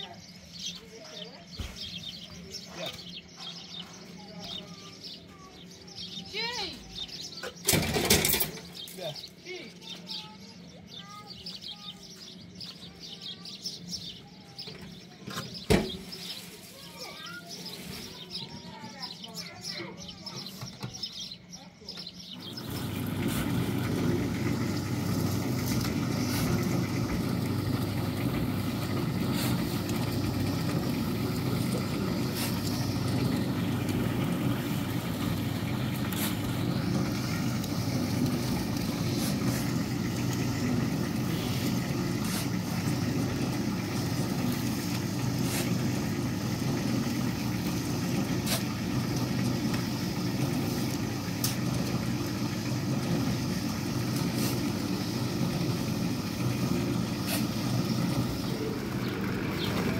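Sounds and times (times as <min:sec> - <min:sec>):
vehicle engine rumble: 0:22.4 - 0:59.9.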